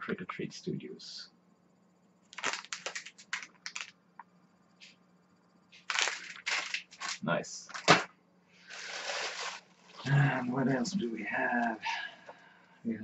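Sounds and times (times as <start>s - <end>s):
plastic bag crinkling: 2.3s - 3.9s, 5.8s - 8.0s, 8.7s - 10.1s.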